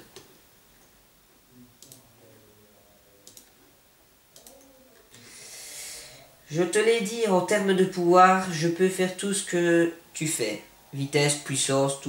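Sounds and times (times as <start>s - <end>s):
computer mouse clicks: 3.2s - 3.6s, 4.3s - 4.7s
soft mumbling: 4.4s - 5.4s
breath drawn in: 5.1s - 6.4s.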